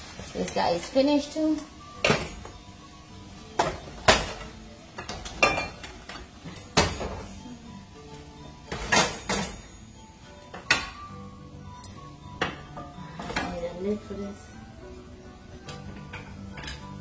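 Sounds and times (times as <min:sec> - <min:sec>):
metal pots and pans clanking: 0:02.0 - 0:02.6, 0:03.5 - 0:07.4, 0:08.5 - 0:09.8, 0:10.4 - 0:11.1, 0:11.8 - 0:13.8, 0:15.6 - 0:17.0.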